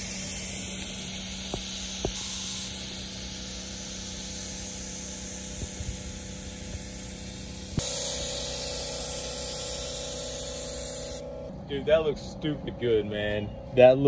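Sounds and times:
spray gun hissing: 0.0 - 11.5.

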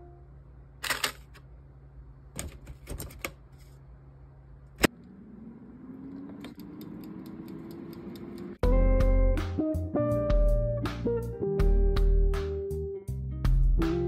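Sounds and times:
fan hum rising in pitch: 4.8 - 9.4
timer ticking: 6.5 - 8.6.

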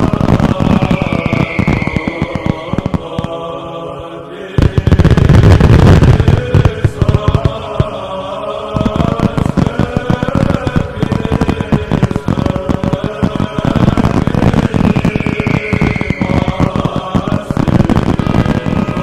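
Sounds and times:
fireworks popping and crackling: 0.0 - 19.0
loud low firework burst: 0.0 - 19.0
voices chanting a hymn: 0.0 - 19.0.

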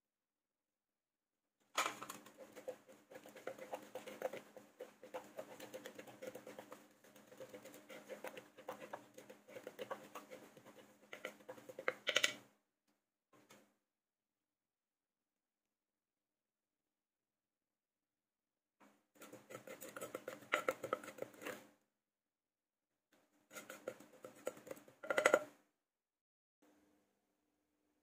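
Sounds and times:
spoon scraping sauce in mortar: 2.0 - 12.1, 19.2 - 21.7, 23.5 - 25.5.

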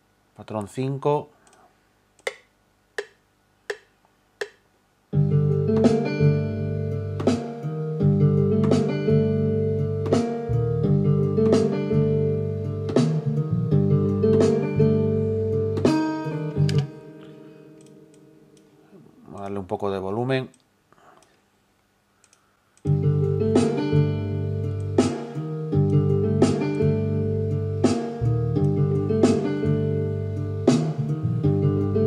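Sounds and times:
metronome clicks: 2.2 - 4.6, 16.6 - 18.7, 22.2 - 23.0, 24.7 - 25.2, 25.8 - 26.0, 28.6 - 28.8
boom-bap beat with plucked guitar loop: 5.2 - 17.4, 22.9 - 32.0.

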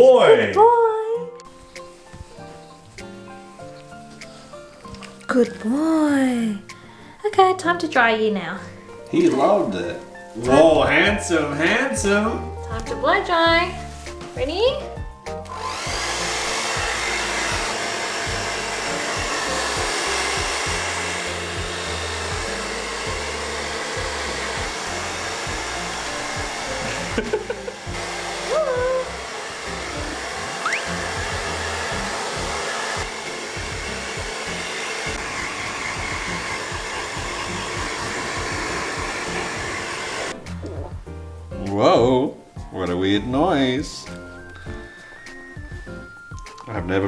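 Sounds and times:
hair dryer running: 15.4 - 40.4, 44.2 - 46.6
rising and falling tone: 26.6 - 33.2, 35.1 - 41.0, 44.2 - 46.7.

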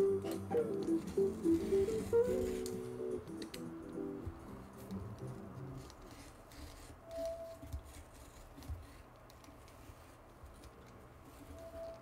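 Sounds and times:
paper rustling: 0.3 - 2.9.

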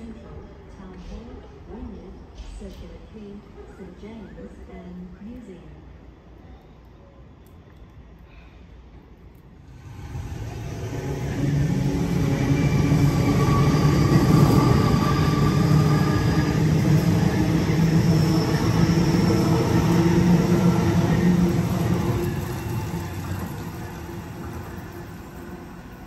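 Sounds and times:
traction motor hum and whine: 9.7 - 26.0
train wheels rumbling on rail: 9.7 - 26.0.

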